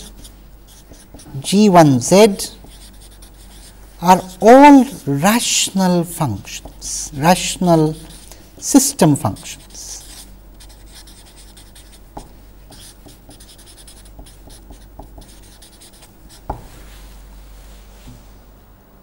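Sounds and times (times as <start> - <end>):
marker writing on paper: 0.0 - 4.8, 6.4 - 16.6.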